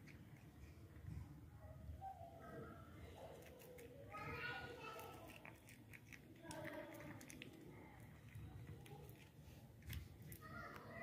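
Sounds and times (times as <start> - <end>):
cat crunching dry kibble: 3.3 - 4.0, 4.8 - 11.0.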